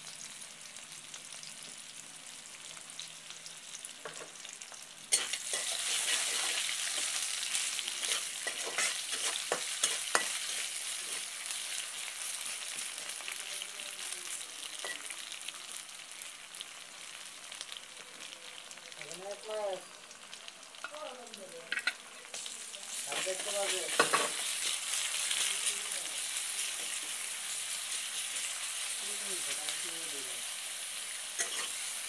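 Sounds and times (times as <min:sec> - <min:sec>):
onions sizzling in oil: 0:00.0 - 0:32.0
metal spatula scraping pot: 0:08.0 - 0:11.3, 0:31.4 - 0:31.8.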